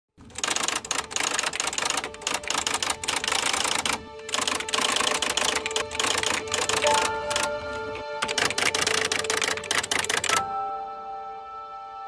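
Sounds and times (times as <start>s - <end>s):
typewriter keys clacking: 0.2s - 7.6s, 8.2s - 10.4s.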